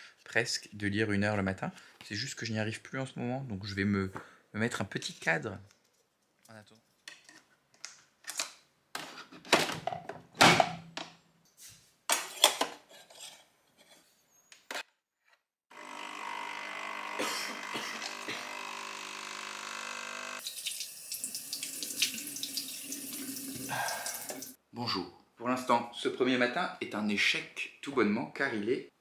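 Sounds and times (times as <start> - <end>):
coffee machine pump humming: 15.7 - 22.6.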